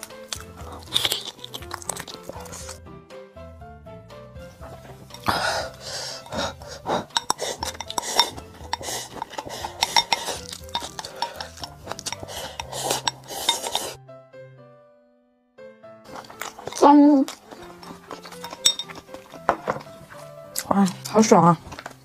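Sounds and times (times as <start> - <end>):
utensils clinking against bowls: 5.1 - 14.0, 16.1 - 20.0.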